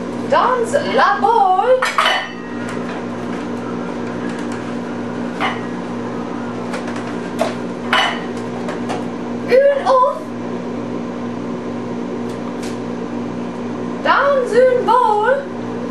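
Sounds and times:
electrical hum of appliance: 0.0s - 15.9s.

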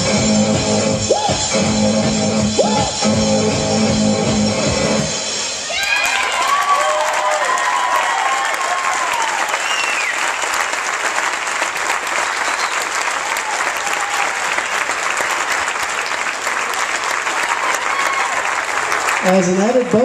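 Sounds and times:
whoops and cheers: 5.6s - 10.4s, 12.5s - 14.7s, 17.3s - 18.7s
crowd applauding: 5.6s - 20.0s.

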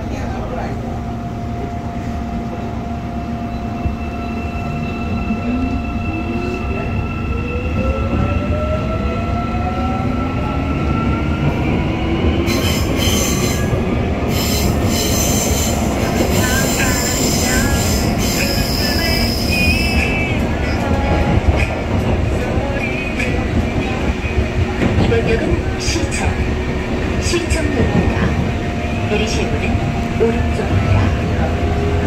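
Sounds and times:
wheels squealing on rails: 12.4s - 22.0s.

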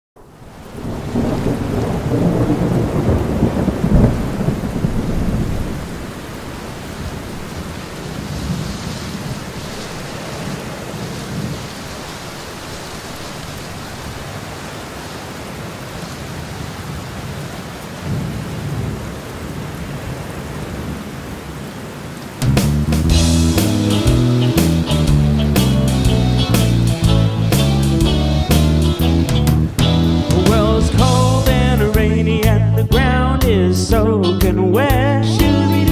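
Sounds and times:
thunder rumbling: 0.2s - 14.3s, 22.4s - 32.6s
steady rain: 0.2s - 32.8s, 34.8s - 35.9s.

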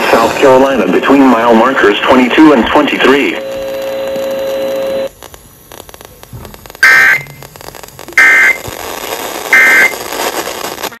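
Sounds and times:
faint radio crackle: 0.0s - 11.0s
two-tone digital data buzz: 6.8s - 7.5s, 8.1s - 8.7s, 9.5s - 10.1s.

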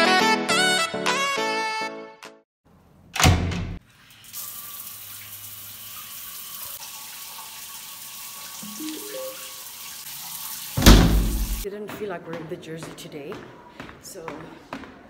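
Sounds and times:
water running: 4.0s - 11.7s
faint rising notes: 8.6s - 9.6s.

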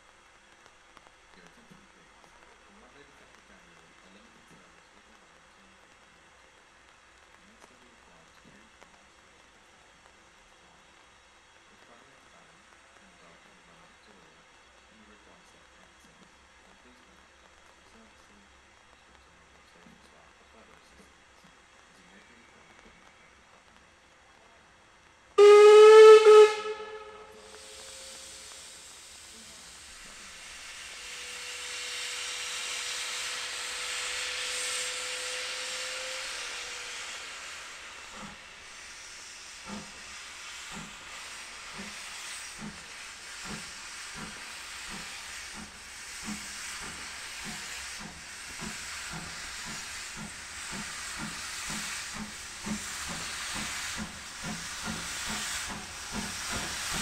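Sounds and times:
steam locomotive whistle: 25.4s - 29.0s, 30.1s - 38.6s
locomotive exhaust beats: 25.4s - 57.0s
steam hissing: 25.4s - 57.0s.

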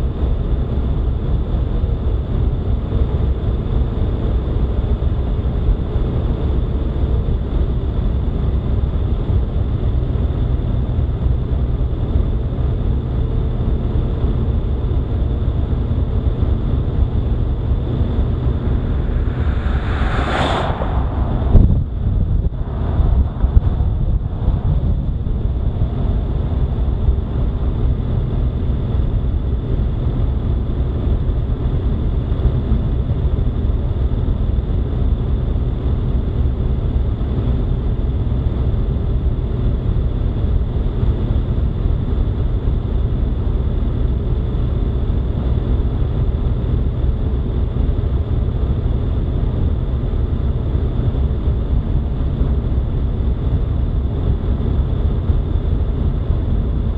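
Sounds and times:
road and wind noise: 0.0s - 56.9s
faint high whine: 15.6s - 29.4s.

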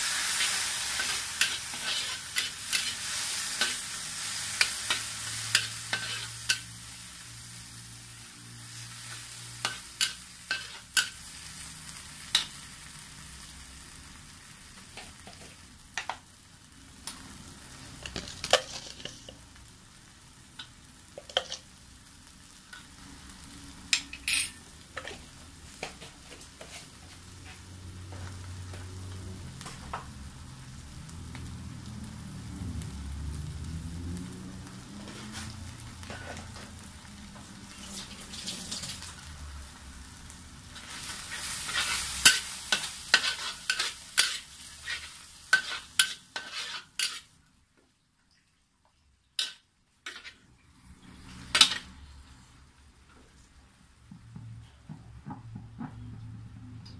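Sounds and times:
metal spatula scraping in wok: 0.0s - 7.9s, 8.6s - 12.8s, 18.0s - 19.4s, 21.2s - 21.7s, 23.9s - 27.7s, 35.0s - 36.8s, 40.7s - 47.4s, 49.4s - 52.4s
soft frying sizzle: 0.0s - 54.9s.

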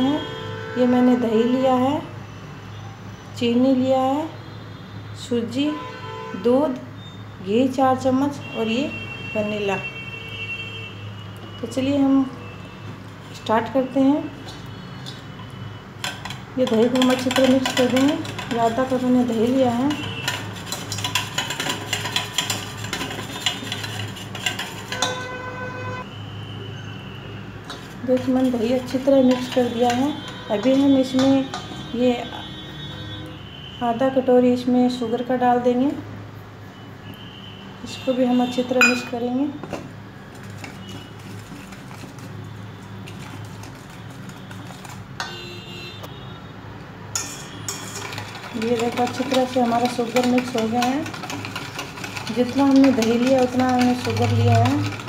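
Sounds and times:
whisk scraping steel bowl: 14.3s - 25.4s, 27.6s - 32.0s, 40.3s - 45.3s, 47.1s - 55.0s
ringing metal clink: 38.8s - 39.2s.

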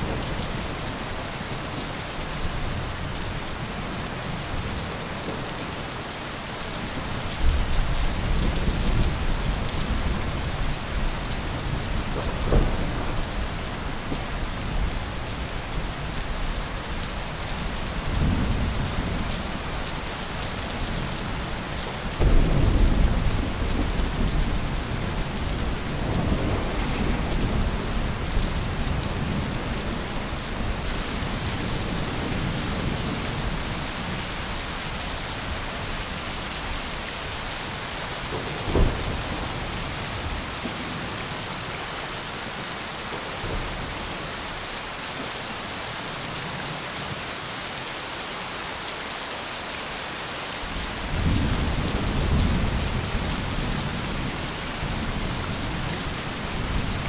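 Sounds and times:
steady rain: 0.0s - 57.0s
rolling thunder: 7.0s - 15.4s, 20.4s - 34.2s, 38.3s - 41.2s
sharp crack of thunder: 7.4s - 14.9s, 22.1s - 29.9s, 38.3s - 41.2s.

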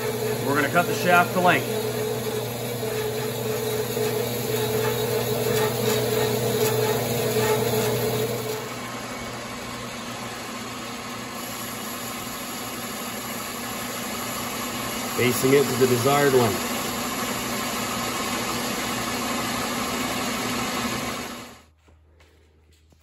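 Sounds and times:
bandsaw cutting metal: 0.0s - 9.0s, 11.3s - 21.5s
lathe running: 0.0s - 21.7s.

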